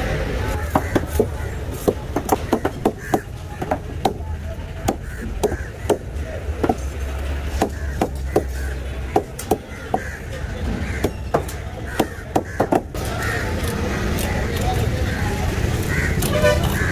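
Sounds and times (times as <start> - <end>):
knife chopping fish on a block: 0.6 - 4.2, 4.8 - 7.0, 7.6 - 10.2, 11.0 - 12.9.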